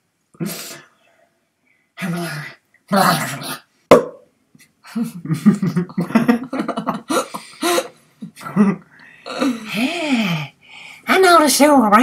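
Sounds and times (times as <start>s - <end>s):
people laughing: 5.0s - 7.4s.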